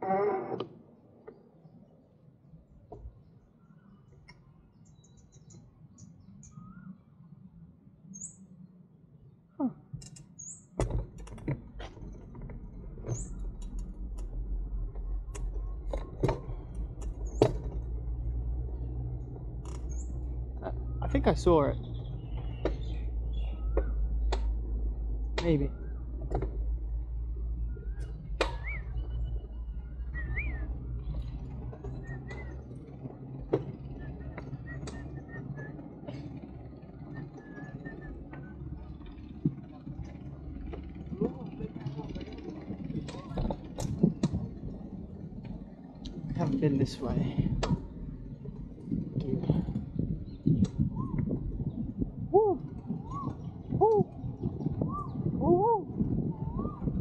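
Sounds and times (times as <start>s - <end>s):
bird chirping: 3.2s - 7.2s, 18.7s - 24.6s, 25.4s - 32.8s, 49.7s - 55.4s
bicycle rolling on a path: 11.1s - 25.2s, 25.8s - 57.0s.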